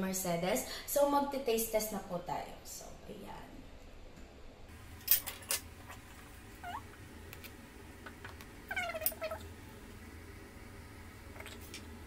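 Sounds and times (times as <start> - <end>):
cat meowing: 6.6 - 6.9, 8.7 - 9.4.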